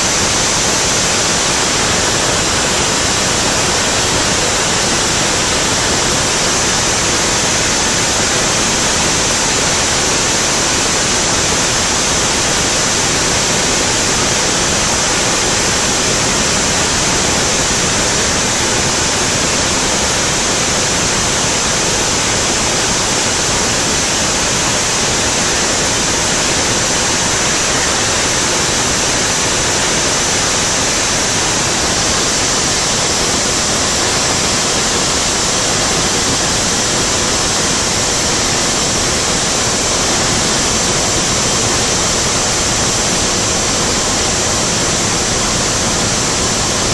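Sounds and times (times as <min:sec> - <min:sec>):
aircraft cockpit engine and slipstream hiss: 0:00.0 - 0:46.9.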